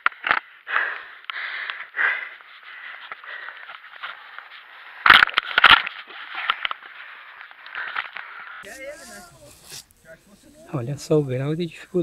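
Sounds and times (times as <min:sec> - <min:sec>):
person breathing heavily: 0:00.1 - 0:05.1.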